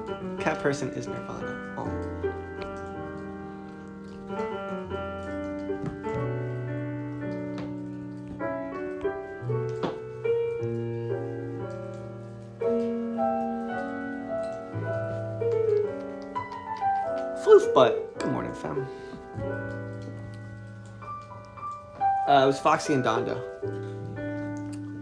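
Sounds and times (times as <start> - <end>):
piano music: 0.0 - 25.0.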